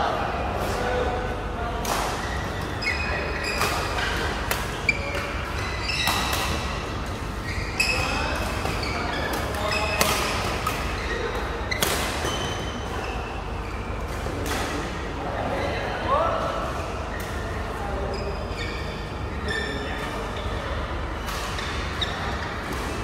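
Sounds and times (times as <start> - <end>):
shoes squeaking on court: 2.1 - 14.0, 17.1 - 20.5, 21.1 - 23.0.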